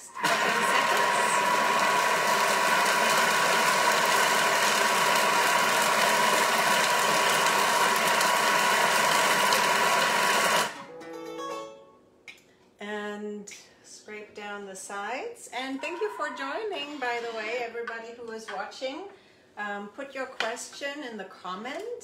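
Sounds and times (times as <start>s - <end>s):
food processor motor running: 0.1s - 10.8s.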